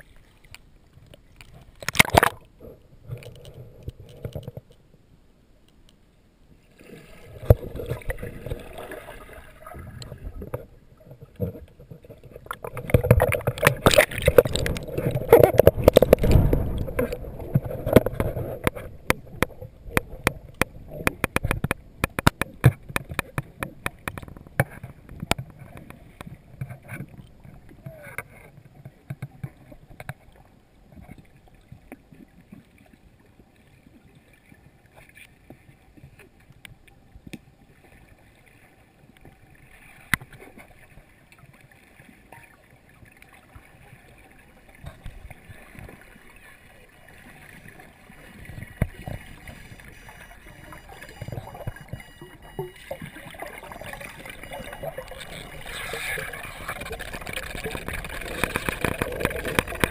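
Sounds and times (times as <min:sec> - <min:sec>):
underwater clicks and knocks: 0:00.4 - 0:04.8, 0:07.4 - 0:08.9, 0:09.7 - 0:30.4, 0:44.8 - 0:46.1, 0:47.4 - 0:59.9
muffled underwater rumble: 0:06.4 - 0:35.0, 0:35.6 - 0:59.9
air bubbles rising: 0:48.4 - 0:59.9.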